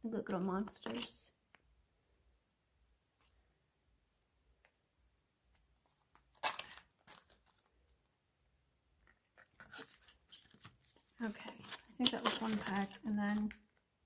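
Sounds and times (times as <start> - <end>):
packaging crinkling and rustling: 5.9 - 7.7, 9.4 - 13.8.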